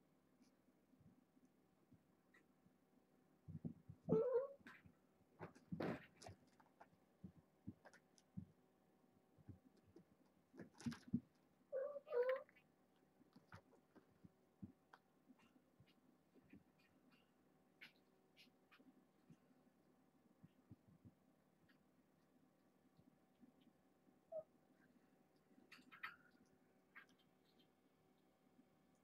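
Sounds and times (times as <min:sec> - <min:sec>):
cat meowing: 0:04.1 - 0:04.6, 0:11.7 - 0:12.5.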